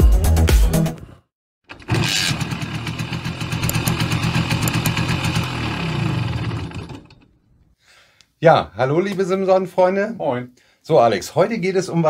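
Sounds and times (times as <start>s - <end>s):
small motorcycle engine running: 1.7s - 7.3s.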